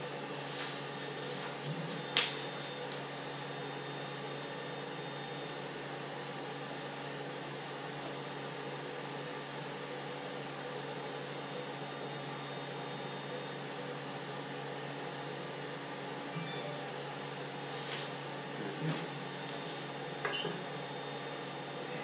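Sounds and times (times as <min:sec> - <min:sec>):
cooling fans whirring: 0:00.0 - 0:22.0
low even hum: 0:16.3 - 0:22.0.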